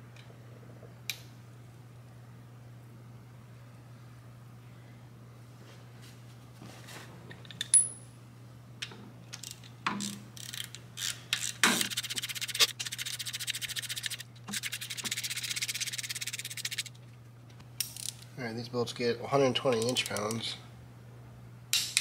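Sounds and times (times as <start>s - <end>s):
hand ratchet clicking: 9.4s - 16.9s.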